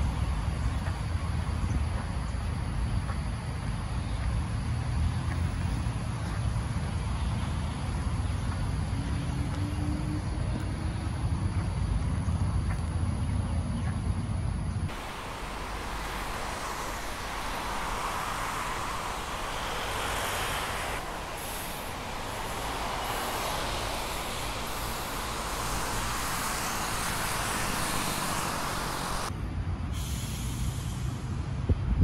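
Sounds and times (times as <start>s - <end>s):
road traffic rushing past: 14.9s - 31.7s.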